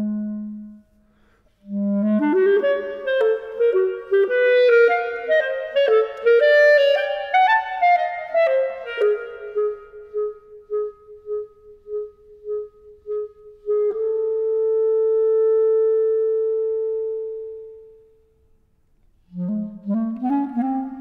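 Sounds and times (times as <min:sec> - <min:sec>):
solo clarinet playing: 0:00.0 - 0:18.4, 0:19.2 - 0:21.0.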